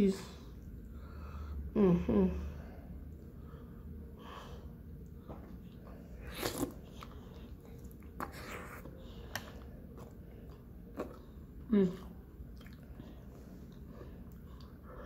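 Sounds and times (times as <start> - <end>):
soft chewing: 4.9 - 15.0.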